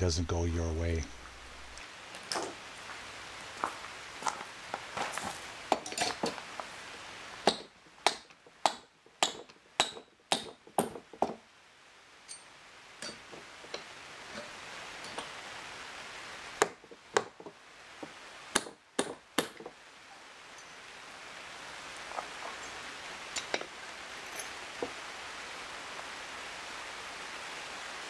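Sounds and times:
hammer striking a chisel: 7.5 - 11.4, 13.0 - 13.2, 18.6 - 19.7.

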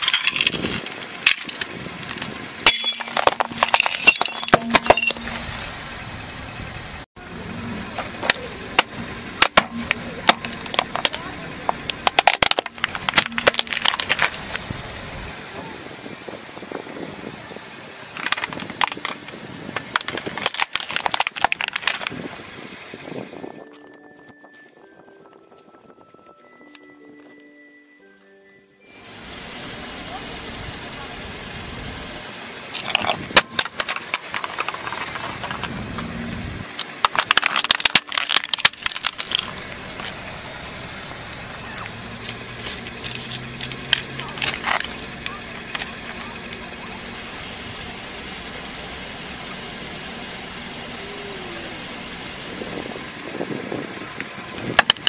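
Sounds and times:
broken shards clicking and rustling: 0.0 - 5.7, 9.4 - 14.6, 18.1 - 22.2, 32.7 - 36.1, 36.7 - 40.8, 41.8 - 46.6
plastic toy cracking: 11.8 - 14.4, 18.2 - 19.2, 19.8 - 22.2, 32.8 - 35.7, 36.7 - 40.2, 43.0 - 45.0.

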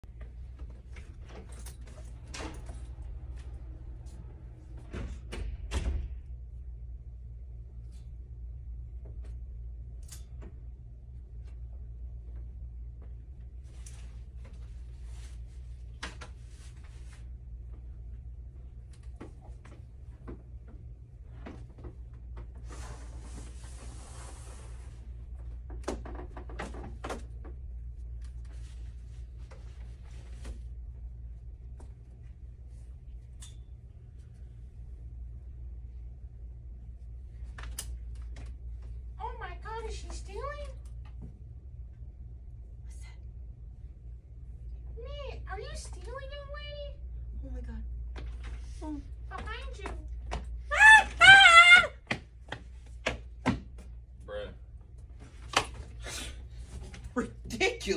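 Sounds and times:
steady low hum: 0.0 - 57.9
clothes and hangers rustling: 0.2 - 4.2
door opening and closing: 4.8 - 6.3.

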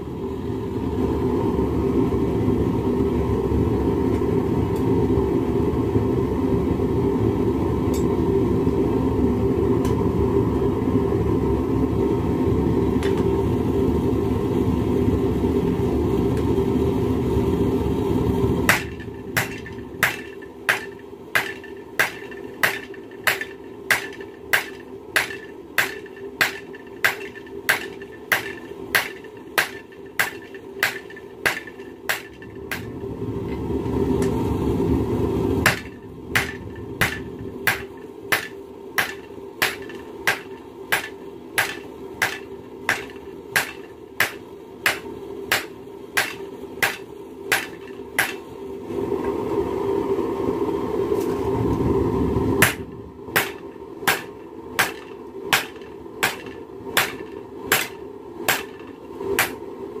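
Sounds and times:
steady rushing noise: 9.3 - 60.0
hammer striking metal on anvil: 18.7 - 32.9, 35.6 - 48.4, 52.6 - 52.8, 53.4 - 59.6.

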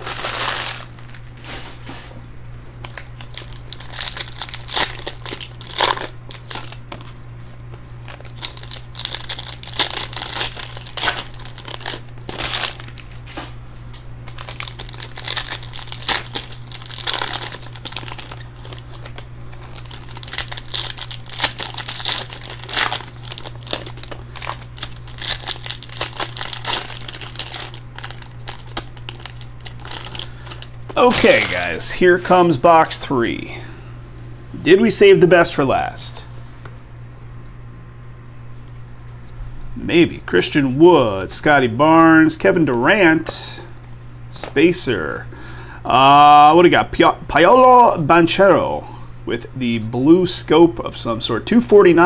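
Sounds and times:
foil wrappers crinkling and tearing: 0.0 - 2.0, 2.8 - 7.2, 7.8 - 32.4.

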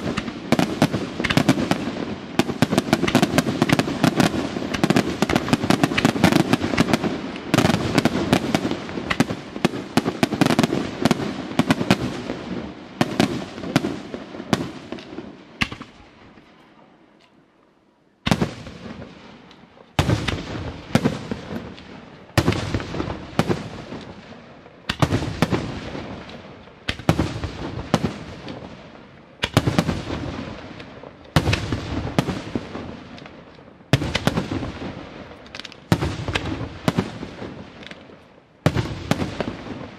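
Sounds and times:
firework shells bursting: 0.0 - 12.3
firework crackle: 0.0 - 16.6, 18.3 - 39.9.

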